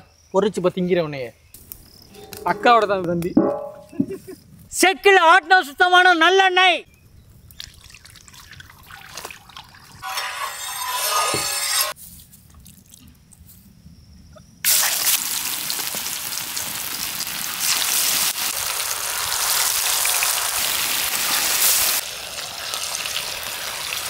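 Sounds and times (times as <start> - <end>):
fish sizzling in hot oil: 14.7 - 24.0.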